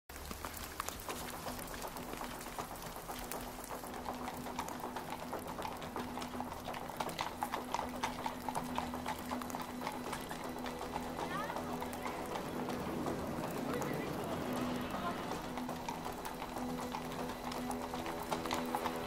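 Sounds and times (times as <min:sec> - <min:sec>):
hoofbeats on muddy track: 0:00.1 - 0:19.0.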